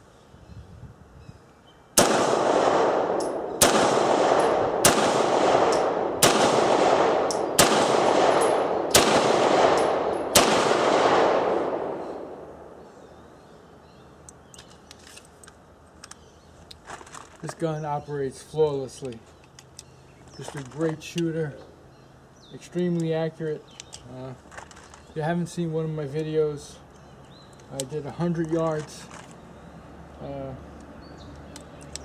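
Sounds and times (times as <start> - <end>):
pistol handling clicks: 2.0 - 12.3, 14.2 - 16.9, 22.8 - 24.9, 30.7 - 32.0
pistol shots ringing: 2.0 - 12.9.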